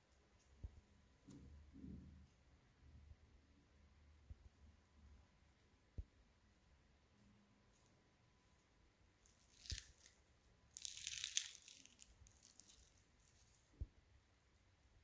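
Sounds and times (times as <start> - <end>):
pastry crackling as torn: 9.2 - 13.6.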